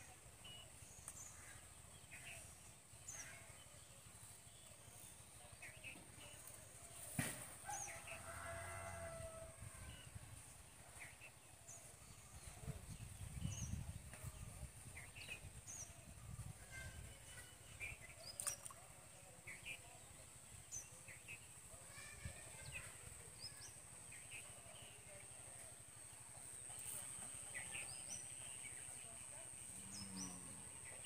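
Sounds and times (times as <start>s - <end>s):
small birds chirping: 10.9s - 25.7s, 26.4s - 31.0s
high insect hum: 23.4s - 31.0s.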